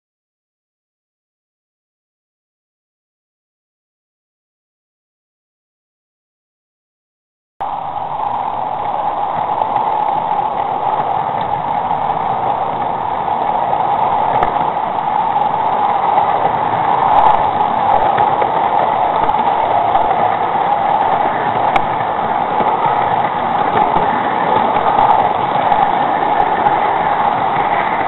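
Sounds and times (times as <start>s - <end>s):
model train motor whirring: 8.1s - 28.0s
faint clicks: 8.8s - 14.8s, 15.8s - 28.0s.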